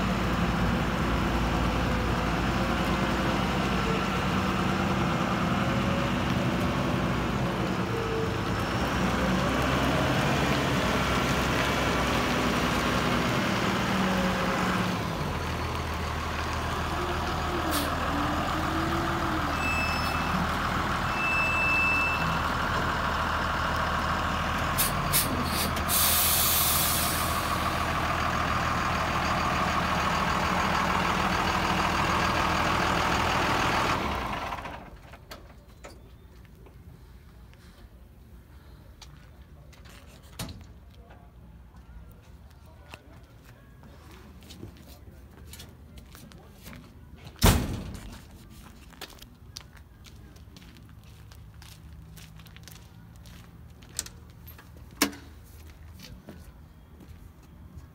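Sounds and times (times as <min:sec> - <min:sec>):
air hiss: 0:24.8 - 0:27.4
excavator engine running: 0:27.1 - 0:35.7.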